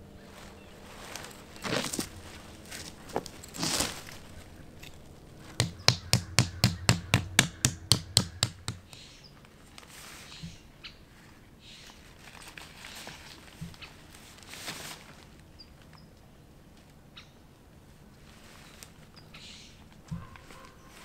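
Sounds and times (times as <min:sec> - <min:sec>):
soft rustling: 0:00.2 - 0:05.6
tent stake being hammered: 0:05.5 - 0:09.1.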